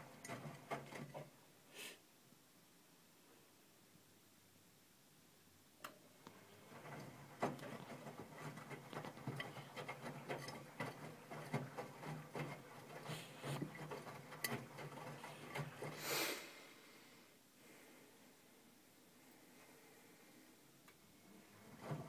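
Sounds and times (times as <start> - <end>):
washing machine motor hum: 6.4 - 16.0, 21.2 - 22.0
wet laundry tumbling and sloshing: 6.4 - 16.0, 21.4 - 22.0.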